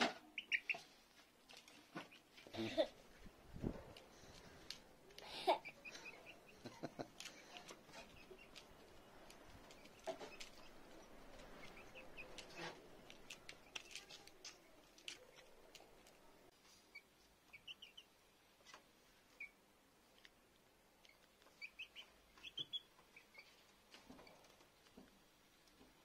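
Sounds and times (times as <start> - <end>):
chicks chirping: 0.3 - 1.0, 5.5 - 14.0, 16.9 - 18.1, 21.0 - 23.6.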